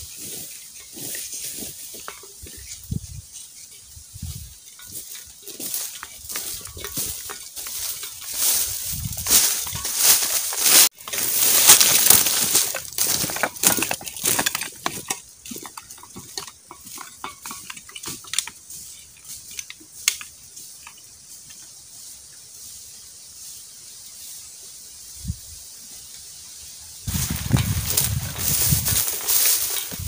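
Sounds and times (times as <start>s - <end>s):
footsteps crunching through leaves: 0.0s - 15.6s, 27.0s - 30.0s.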